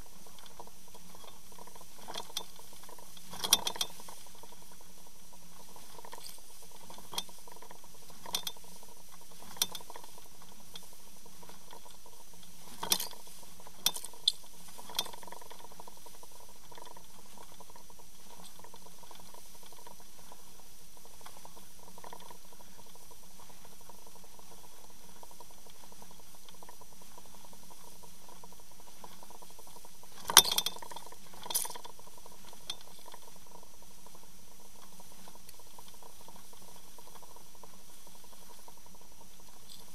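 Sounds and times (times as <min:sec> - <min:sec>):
faint hum: 0:00.0 - 0:39.9.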